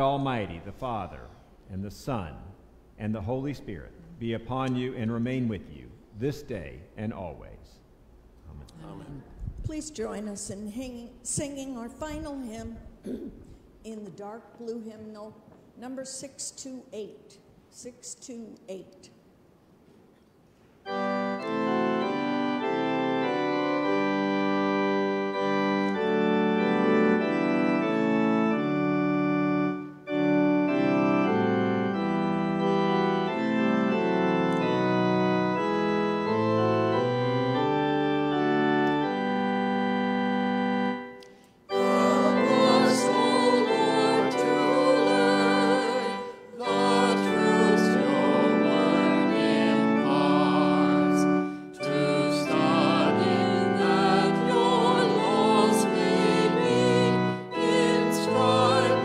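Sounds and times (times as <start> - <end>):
church organ chords: 0.0 - 7.5, 20.8 - 59.0
congregation singing a hymn: 20.9 - 41.1, 41.7 - 59.0.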